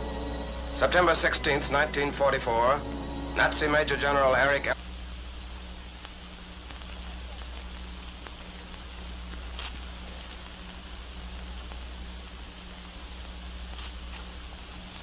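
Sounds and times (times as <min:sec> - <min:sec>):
film soundtrack hiss and hum: 0:00.0 - 0:15.0
faint crackles: 0:04.7 - 0:15.0.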